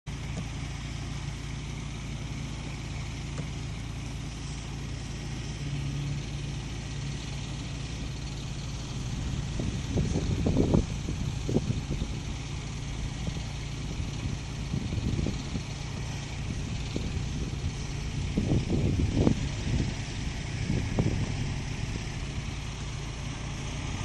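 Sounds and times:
low engine hum: 0.1s - 24.0s.

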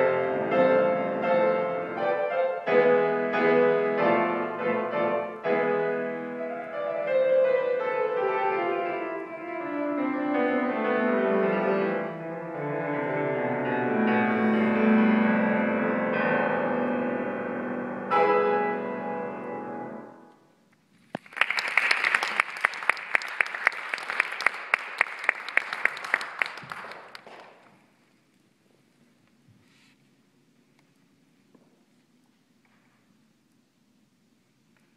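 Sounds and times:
grand piano classical piece: 0.0s - 20.5s
audience applauding: 21.0s - 27.7s.

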